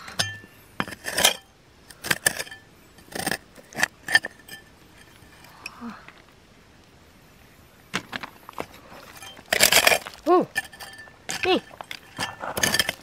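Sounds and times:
hard objects knocking and clinking: 0:09.1 - 0:13.0.

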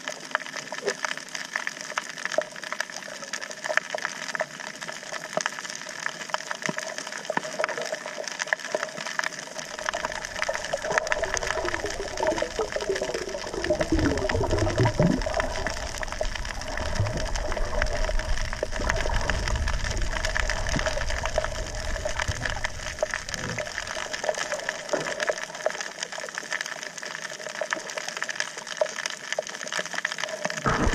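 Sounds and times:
low rumble of water: 0:00.0 - 0:30.9
underwater crackle of clicks: 0:00.0 - 0:30.9
faint steady hum: 0:09.7 - 0:24.9.

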